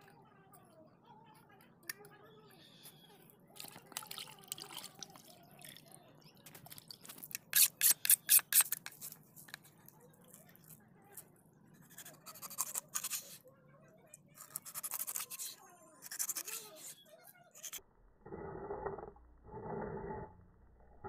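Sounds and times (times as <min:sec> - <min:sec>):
knife scraping fish: 0:07.2 - 0:09.6, 0:12.0 - 0:13.4, 0:14.4 - 0:17.0.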